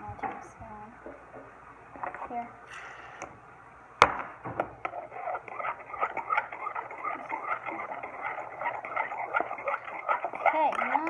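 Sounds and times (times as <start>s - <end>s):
slime squelching: 4.8s - 11.0s.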